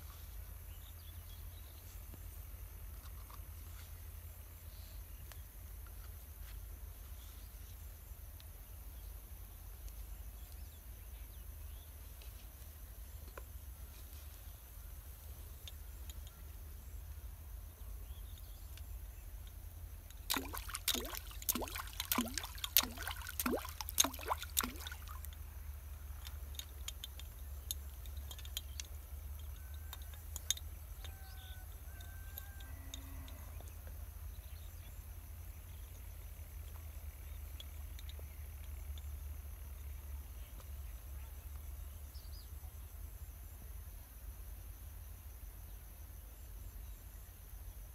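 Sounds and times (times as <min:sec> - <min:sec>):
fish splashing in water: 0:20.2 - 0:25.5.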